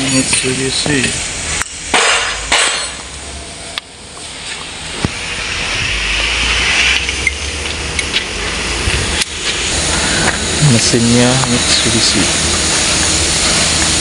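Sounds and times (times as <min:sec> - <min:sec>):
sharp knocks: 0:01.9 - 0:03.0
hiss: 0:04.3 - 0:14.0.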